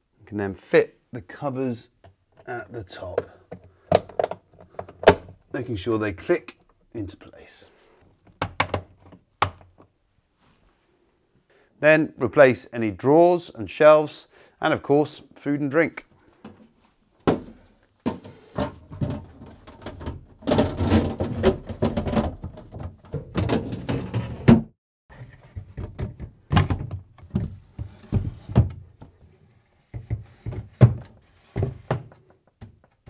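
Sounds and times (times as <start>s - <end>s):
clunks and knocks: 17.2s - 29.2s
plastic drawers scraping: 17.4s - 29.1s, 29.8s - 32.2s.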